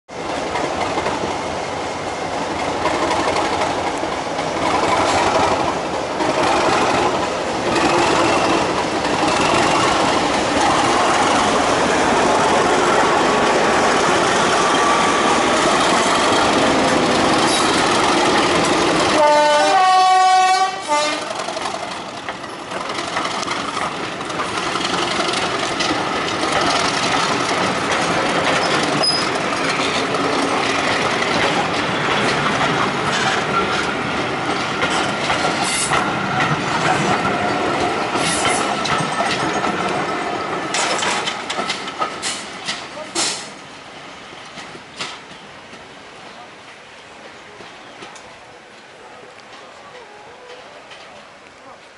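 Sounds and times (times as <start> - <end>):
train wheels clattering over rail joints: 0.1 - 43.7, 44.4 - 45.9
diesel locomotive engine running: 0.1 - 44.4
locomotive horn blast: 19.1 - 21.4.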